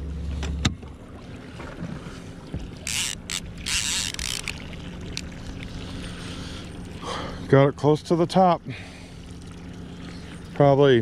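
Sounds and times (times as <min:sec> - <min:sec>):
outboard motor idling: 0:00.0 - 0:11.0
fishing reel gears cranking: 0:02.8 - 0:05.3.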